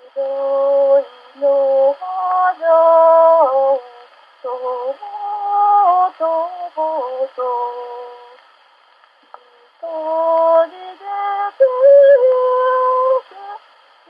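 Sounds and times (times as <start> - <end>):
woman singing slow melody: 0.0 - 8.5, 9.3 - 13.8.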